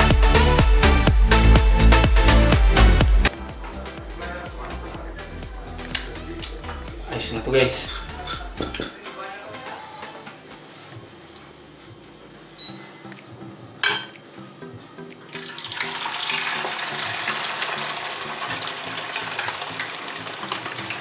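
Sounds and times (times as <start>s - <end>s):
batter sizzling in hot oil: 15.3s - 21.0s.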